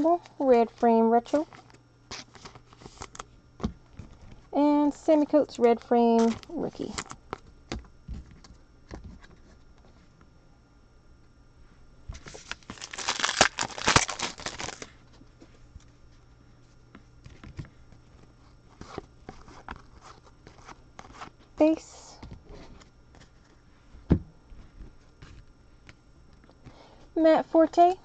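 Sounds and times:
cards clicking and rustling: 12.2s - 14.9s
wrapper tearing and crinkling: 12.2s - 15.0s.

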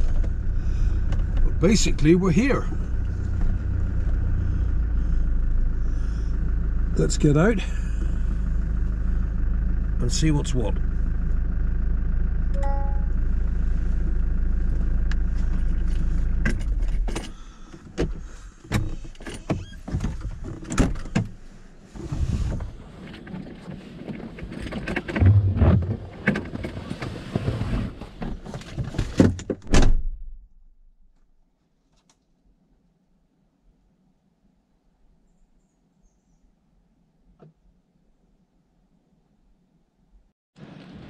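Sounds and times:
car engine idling: 0.0s - 19.2s
knocks clicks and rustles: 23.1s - 27.4s
loud thump: 25.2s - 26.0s.

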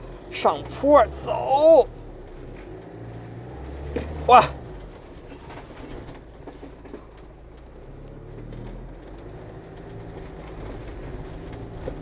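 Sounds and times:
motorhome engine running low: 0.0s - 12.0s
wheels knocking on rough ground: 2.1s - 12.0s.

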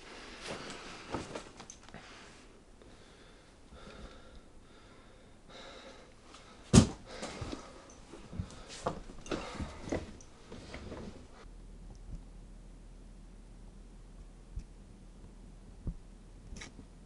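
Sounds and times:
rustling and handling noises: 0.0s - 2.5s, 6.2s - 11.4s
heavy thump: 6.7s - 7.0s.

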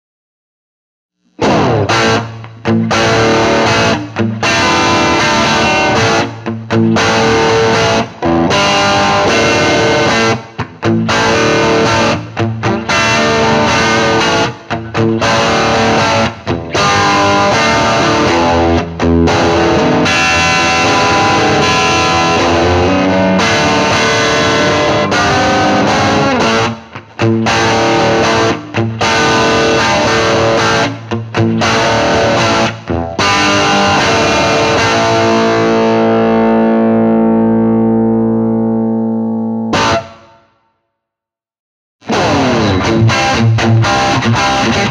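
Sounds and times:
overdriven electric guitar: 1.2s - 40.5s, 42.0s - 44.9s.

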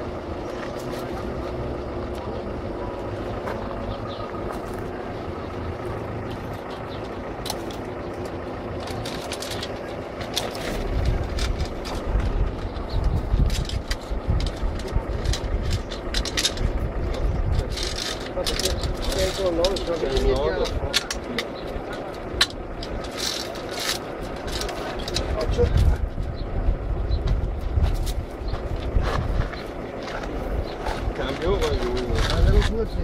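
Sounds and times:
vehicle engine running: 0.0s - 33.0s
wind buffeting microphone: 10.7s - 20.9s, 24.3s - 33.0s.

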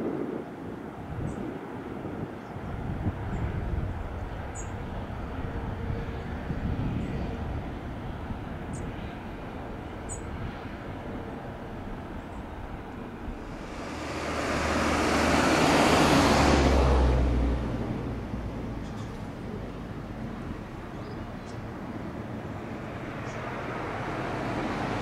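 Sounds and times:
jet engines roaring: 0.0s - 20.9s, 21.7s - 25.0s
deep steady drone: 11.2s - 18.8s
low rumble: 13.0s - 18.4s.

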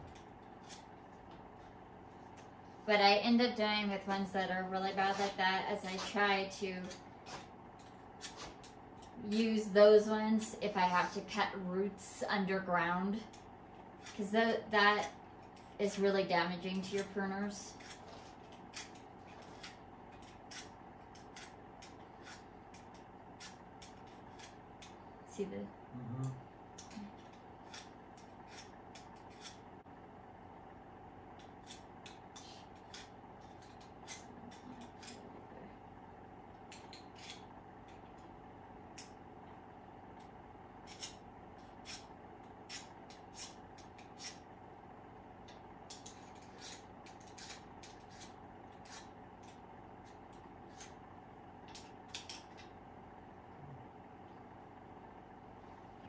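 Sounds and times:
faint steady hum: 0.0s - 56.0s
pruners clicking and snipping: 13.2s - 25.0s, 26.2s - 29.6s, 31.4s - 35.5s, 36.5s - 38.3s, 40.2s - 44.4s, 45.4s - 51.0s, 51.6s - 52.8s.

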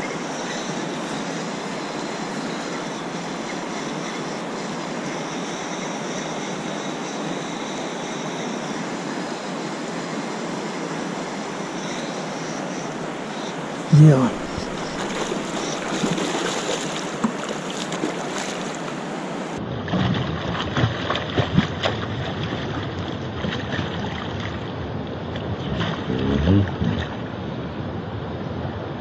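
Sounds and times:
rush of wind and water: 0.0s - 29.0s
fish splashing at water surface: 14.4s - 19.0s.

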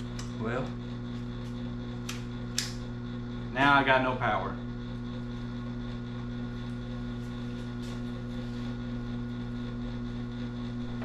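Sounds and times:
steady hum with low buzz: 0.0s - 11.0s.

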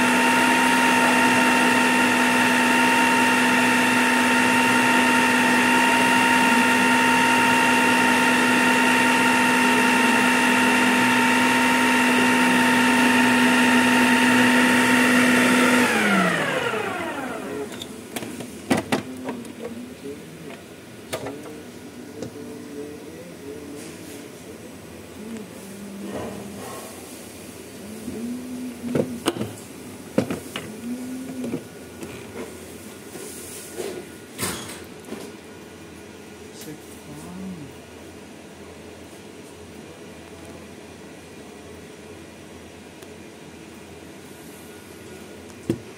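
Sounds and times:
food processor motor whining: 0.0s - 18.0s.

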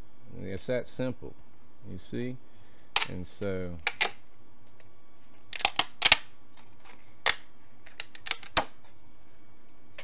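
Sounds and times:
plastic parts snapping off: 3.0s - 3.2s, 3.8s - 4.9s, 5.5s - 8.8s.

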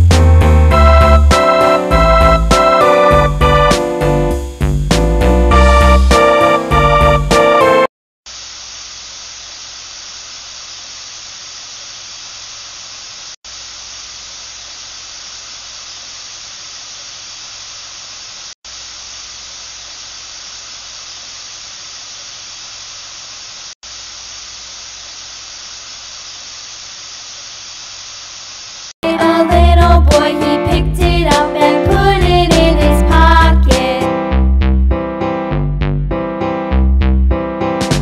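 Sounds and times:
steady hiss: 8.3s - 29.0s.

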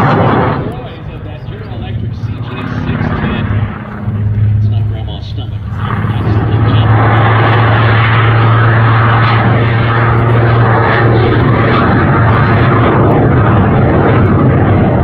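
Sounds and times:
jet rushing noise: 0.0s - 15.0s
propeller drone: 0.0s - 15.0s.

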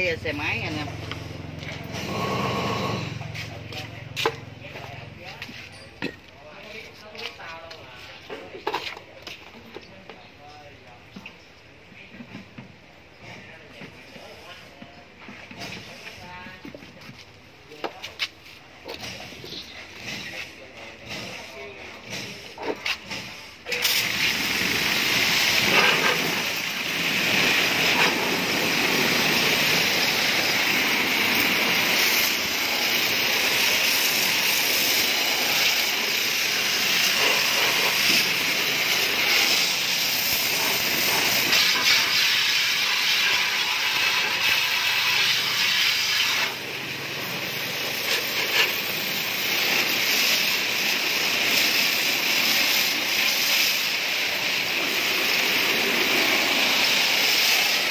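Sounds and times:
hose water spraying on wheel: 0.0s - 5.8s, 13.4s - 57.9s.

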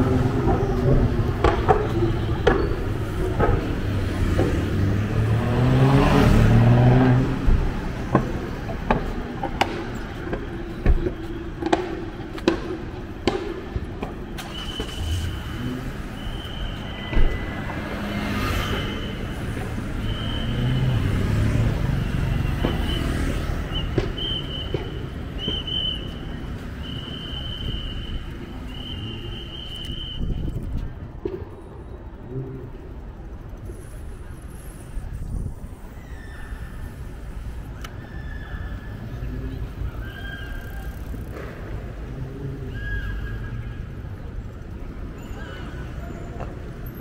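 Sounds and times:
engine passing: 2.9s - 8.9s, 17.5s - 24.7s.

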